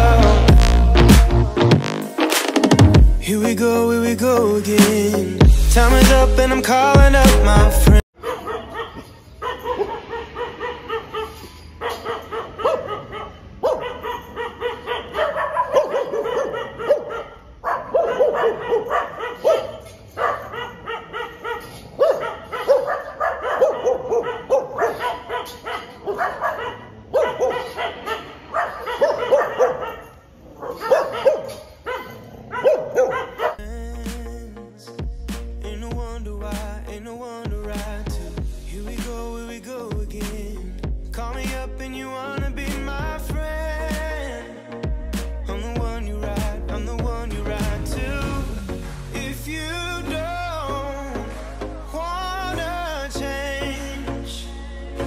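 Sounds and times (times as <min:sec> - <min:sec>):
music: 0:00.0 - 0:08.0, 0:33.6 - 0:55.0
dogs barking: 0:08.2 - 0:33.6.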